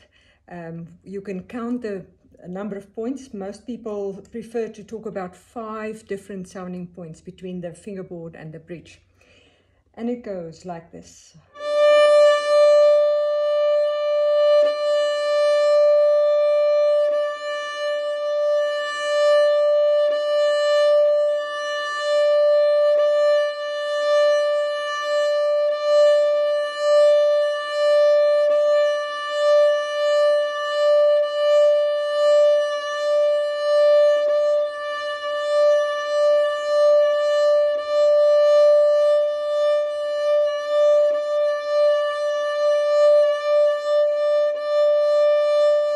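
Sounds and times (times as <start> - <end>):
violin sustained high note: 11.5 - 45.9.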